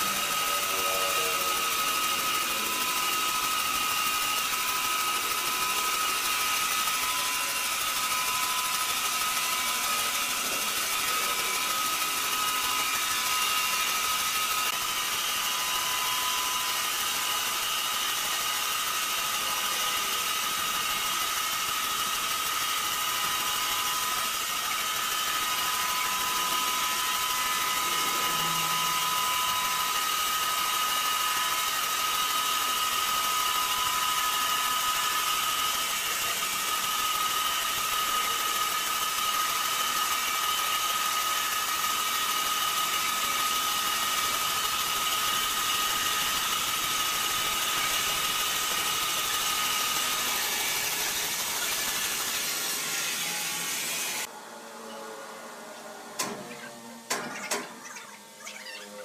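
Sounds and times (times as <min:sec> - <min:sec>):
sawmill machine whine: 0:00.0 - 0:59.0.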